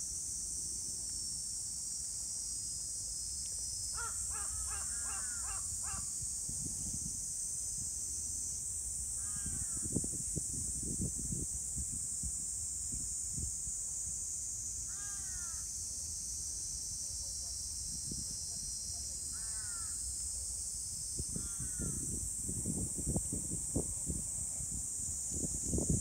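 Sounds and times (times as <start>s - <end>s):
crow cawing: 4.0s - 6.1s, 9.2s - 9.8s, 14.9s - 15.6s, 19.3s - 20.0s, 21.4s - 22.0s.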